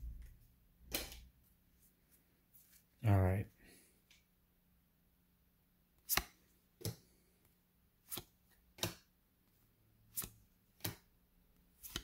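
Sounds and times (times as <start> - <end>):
cards snapping off a stack: 0.9 - 1.3, 6.1 - 7.0.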